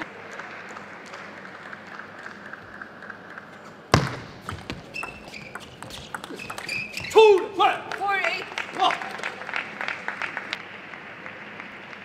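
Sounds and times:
table tennis ball clicks: 2.4 - 7.2
shoes squeaking on floor: 4.4 - 7.4.

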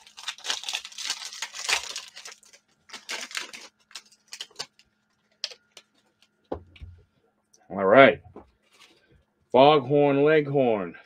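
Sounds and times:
foil wrapper crinkling: 0.0 - 6.4.

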